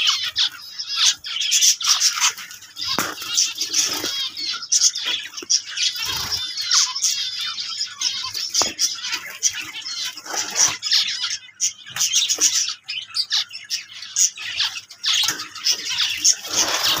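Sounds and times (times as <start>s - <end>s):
finches chirping: 0.0s - 17.0s.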